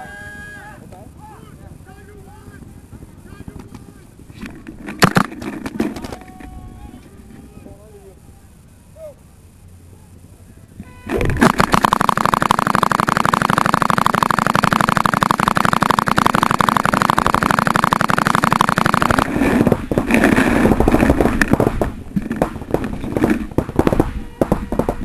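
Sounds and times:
paintball marker firing: 4.4 - 6.3, 11.1 - 25.0.

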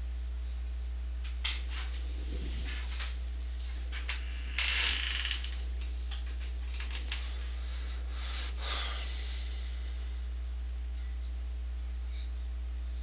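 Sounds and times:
low electrical hum: 0.0 - 13.0
man breathing out hard: 7.4 - 10.2.

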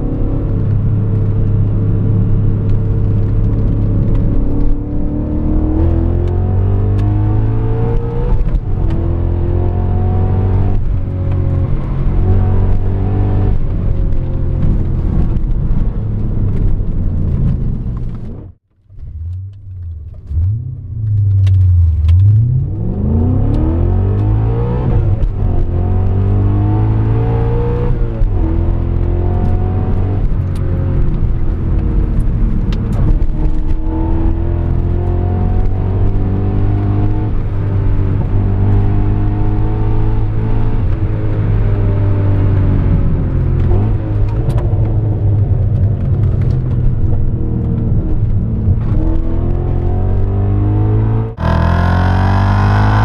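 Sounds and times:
car engine revving: 17.4 - 53.0.

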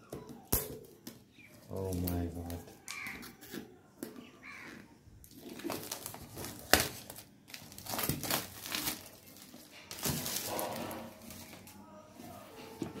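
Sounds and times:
plastic wrap crinkling and tearing: 1.6 - 3.6, 5.2 - 11.8.

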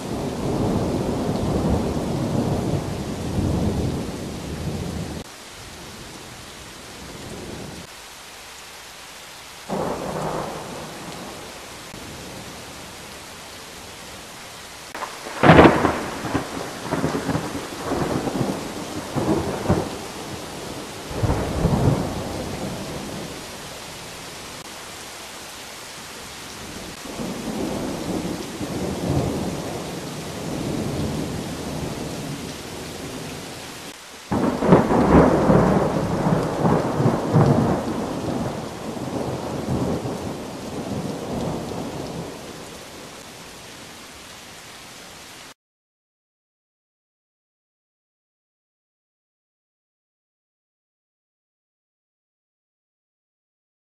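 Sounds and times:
steady rain: 0.0 - 45.6
rolling thunder: 0.1 - 5.2, 14.9 - 23.4, 26.9 - 33.4, 34.3 - 42.6
sharp thunderclap: 15.0 - 23.2, 27.0 - 29.8, 34.3 - 42.4.

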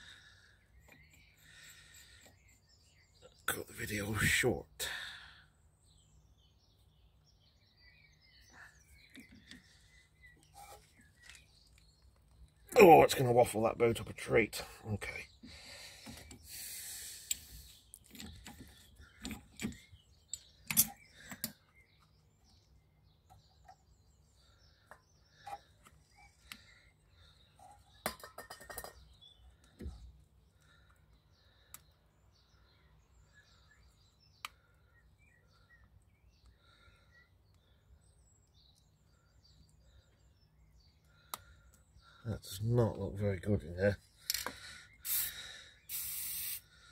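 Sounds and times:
birds chirping: 0.0 - 46.9
aerosol spray hiss: 45.1 - 46.6.

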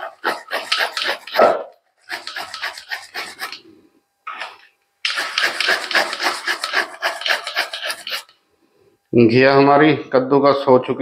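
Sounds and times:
grater rasping: 0.0 - 3.7, 5.1 - 8.4.

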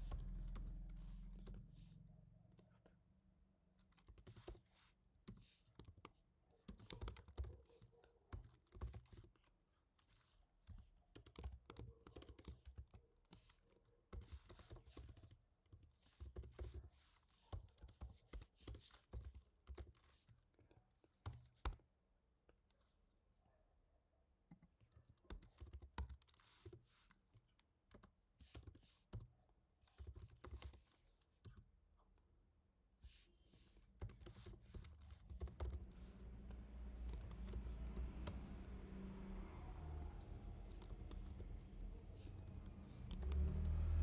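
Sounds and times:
typing on computer keyboard: 3.8 - 4.6, 5.3 - 9.5, 10.1 - 20.4, 21.2 - 21.8, 25.1 - 26.9, 29.9 - 31.6, 34.0 - 36.1, 37.0 - 38.4, 40.6 - 44.0.

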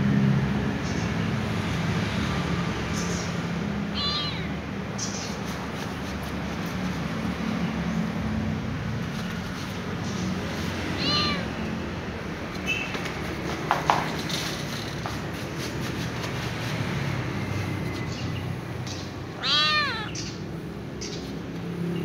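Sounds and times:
kitten meowing: 3.9 - 4.7, 10.9 - 11.7, 19.3 - 20.4.

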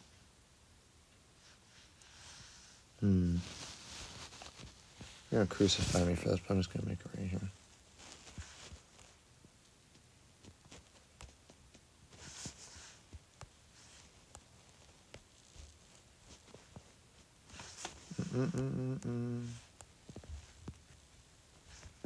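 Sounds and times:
man humming low note: 3.0 - 3.5, 18.1 - 19.6.

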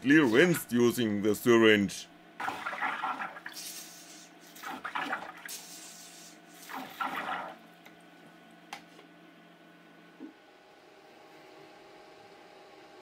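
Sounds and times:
water squirting into plastic tub: 2.4 - 3.8, 4.5 - 5.8, 6.6 - 7.6.

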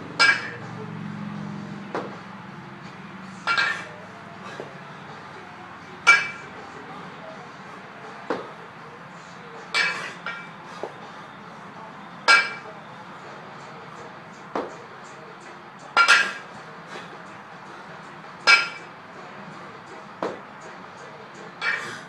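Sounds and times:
kettlebell metal clinks: 0.2 - 0.8, 3.4 - 4.0, 6.0 - 6.6, 9.7 - 10.6, 12.2 - 12.8, 15.9 - 16.5, 18.4 - 18.9, 21.6 - 22.0.

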